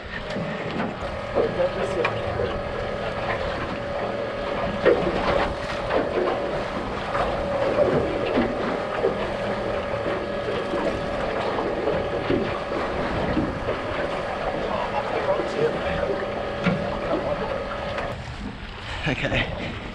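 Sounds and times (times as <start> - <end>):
outboard motor droning: 0.0 - 19.9
water slapping against hull: 0.0 - 19.9.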